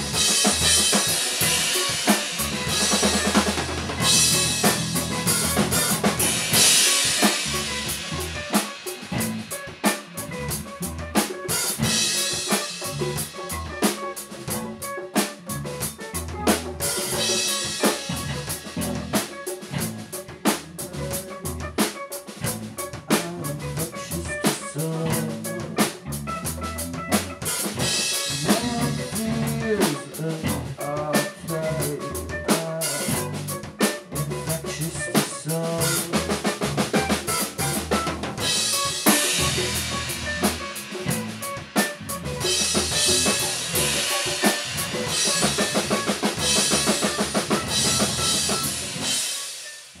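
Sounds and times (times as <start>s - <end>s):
electric bass line: 0.0s - 20.2s, 22.4s - 30.9s, 31.5s - 49.2s
drum kit playing: 0.0s - 50.0s.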